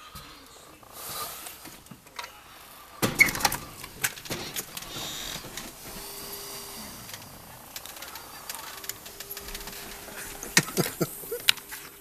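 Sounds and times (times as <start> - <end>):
steady hiss: 0.0 - 12.0
storm door clicks and clatter: 3.0 - 11.7.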